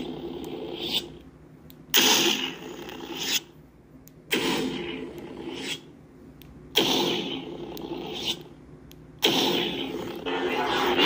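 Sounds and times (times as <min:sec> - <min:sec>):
lightsaber humming: 0:06.7 - 0:08.6, 0:09.2 - 0:11.0
lightsaber igniting: 0:09.2 - 0:11.0.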